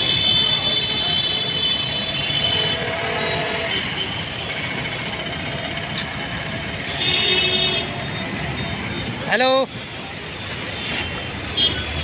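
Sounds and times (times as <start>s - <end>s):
road traffic: 0.0s - 12.0s
vehicle horn: 6.9s - 8.0s.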